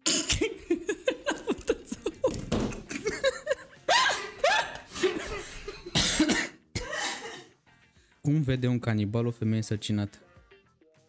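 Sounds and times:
people laughing: 0:00.4 - 0:06.0.

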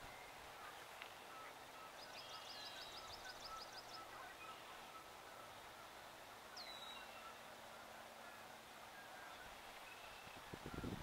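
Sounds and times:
songbird trilling: 0:00.0 - 0:05.9, 0:06.5 - 0:07.4.

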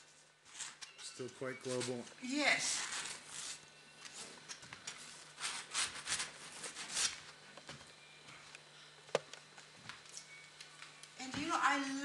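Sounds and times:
paintbrush scrubbing on canvas: 0:05.4 - 0:07.2.

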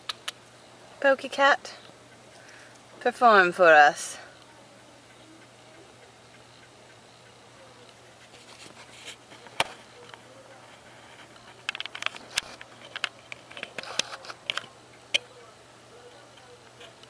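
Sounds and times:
loud snaps: 0:00.0 - 0:00.4
sharp clicks and crackles: 0:00.0 - 0:00.5, 0:05.7 - 0:15.3.

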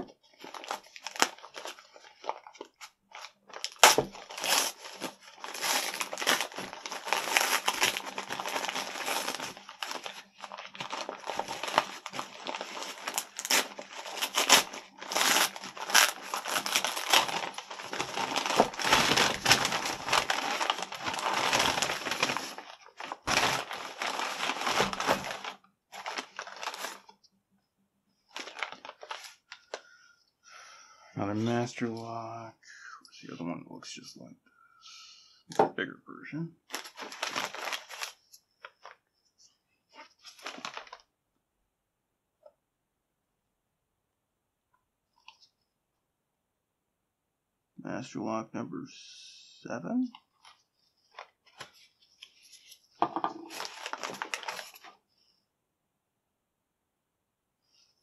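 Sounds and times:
plastic mailer bag crinkling: 0:00.3 - 0:27.1, 0:28.3 - 0:29.9, 0:36.7 - 0:39.0, 0:40.0 - 0:41.1, 0:50.1 - 0:55.0.

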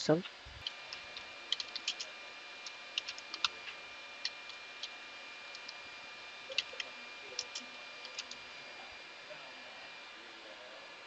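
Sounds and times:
faint high-pitched hum: 0:00.0 - 0:11.0
keyboard keys clicking: 0:00.6 - 0:03.6, 0:06.5 - 0:08.4.

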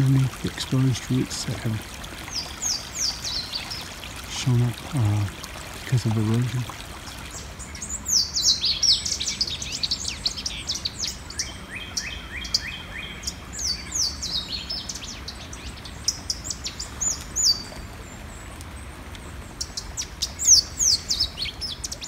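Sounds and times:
birds calling high down-slurred notes: 0:07.3 - 0:22.0.

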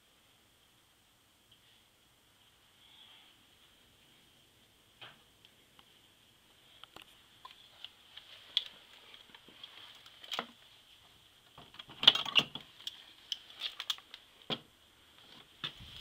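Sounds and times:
faint high whine: 0:00.0 - 0:09.6.

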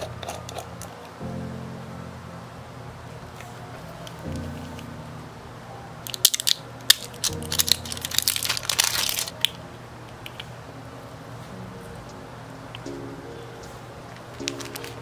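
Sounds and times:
soft background music: 0:00.0 - 0:15.0
plastic packaging crinkling: 0:06.1 - 0:09.6, 0:14.4 - 0:15.0
sharp plastic snaps: 0:06.1 - 0:09.6.

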